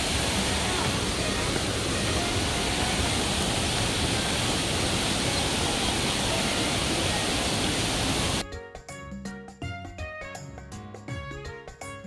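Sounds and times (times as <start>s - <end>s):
waterfall rushing water: 0.0s - 8.4s.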